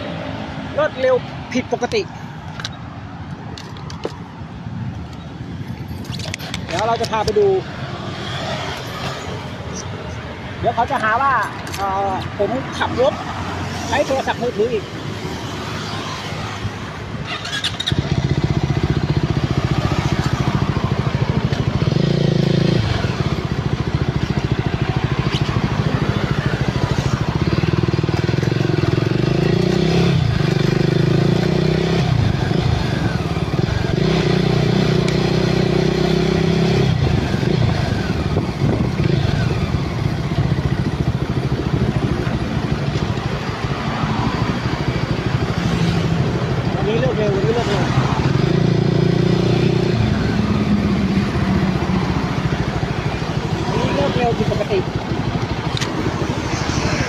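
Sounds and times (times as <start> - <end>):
motorcycle engine running: 17.4 - 57.0.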